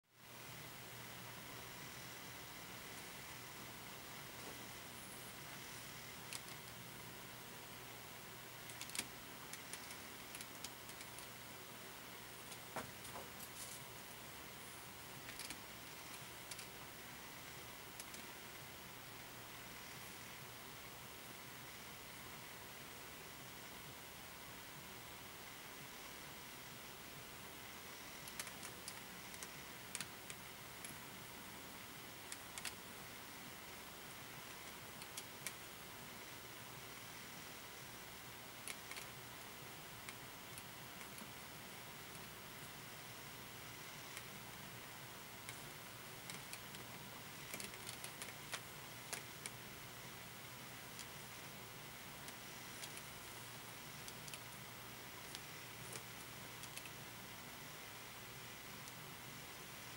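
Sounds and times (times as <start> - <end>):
steady hiss: 0.0 - 59.9.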